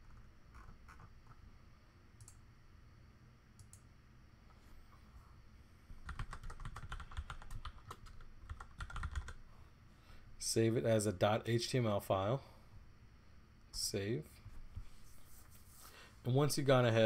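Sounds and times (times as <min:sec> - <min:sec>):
keyboard typing: 0:06.0 - 0:09.4
separate keyboard clicks: 0:06.1 - 0:09.4.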